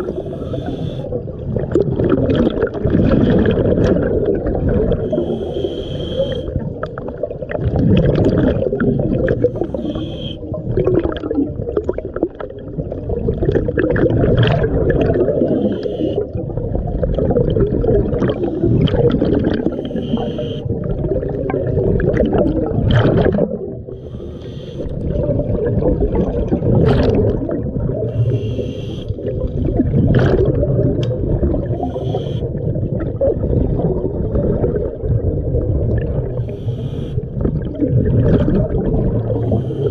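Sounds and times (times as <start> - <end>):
regulator hiss on inhale: 0.0 - 1.1, 5.0 - 6.5, 9.4 - 10.4, 15.5 - 16.2, 19.7 - 20.7, 23.9 - 25.0, 28.1 - 29.2, 31.7 - 32.5, 36.4 - 37.2, 39.4 - 39.9
gurgling exhaled bubbles: 0.0 - 39.9.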